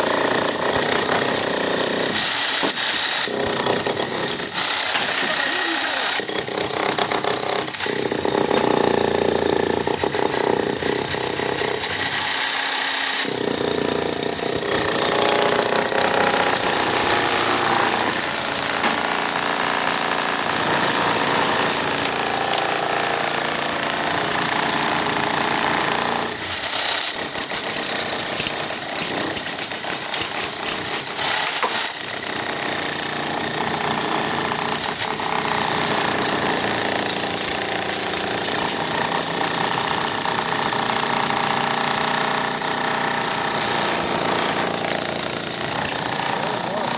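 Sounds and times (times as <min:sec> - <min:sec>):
demolition hammer chiselling concrete: 0:00.0 - 0:46.9
concrete crunching: 0:06.2 - 0:12.2, 0:13.4 - 0:39.7.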